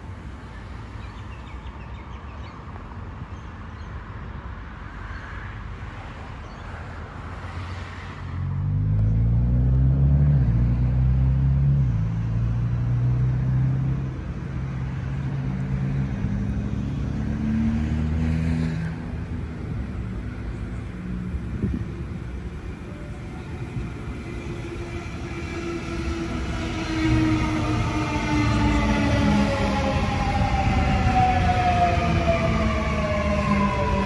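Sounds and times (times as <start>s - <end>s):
electric train rumble: 19.0s - 34.0s.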